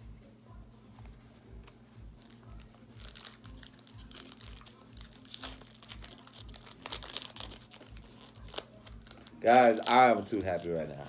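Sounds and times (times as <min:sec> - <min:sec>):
foil wrapper crinkling: 0:02.2 - 0:11.0.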